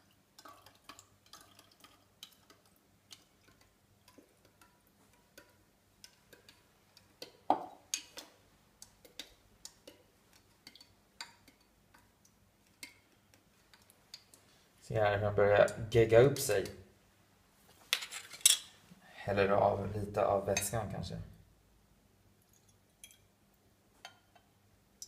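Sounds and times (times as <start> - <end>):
spoon stirring slime in glass: 0.4 - 14.5.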